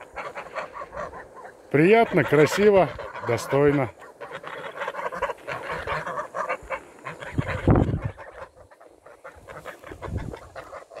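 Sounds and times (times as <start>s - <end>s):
geese honking and cackling: 0.0s - 11.0s.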